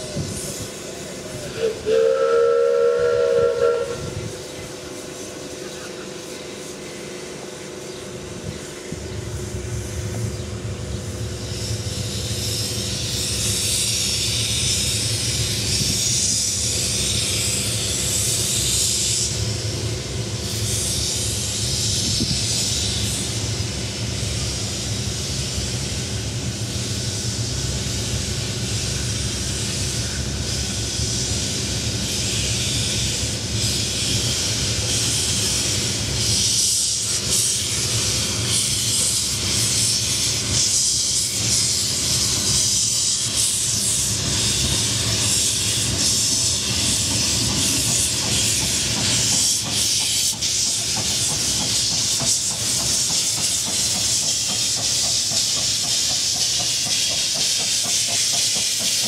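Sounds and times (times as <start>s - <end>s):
locomotive engine rumble: 0.0s - 40.6s
steam hissing: 0.0s - 59.0s
steam locomotive whistle: 1.3s - 4.5s.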